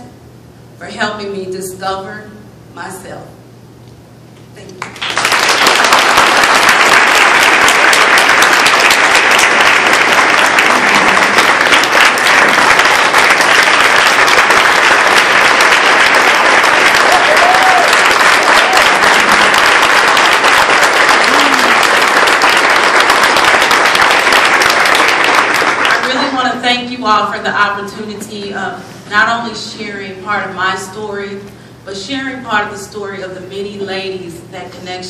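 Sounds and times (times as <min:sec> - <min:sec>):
audience applauding: 0:04.8 - 0:26.3.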